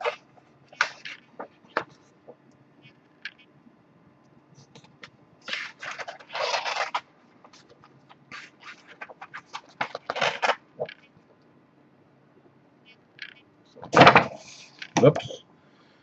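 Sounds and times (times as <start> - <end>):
cardboard scraping: 5.4 - 7.7.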